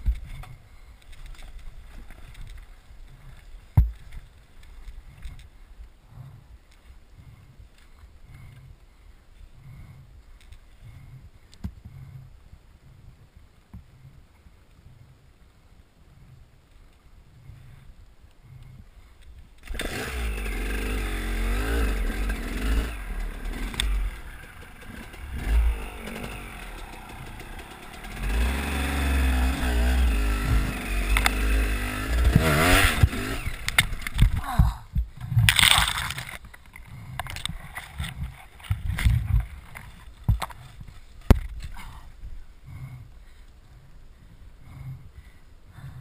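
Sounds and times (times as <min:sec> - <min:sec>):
dirt bike engine revving: 0:19.6 - 0:34.2.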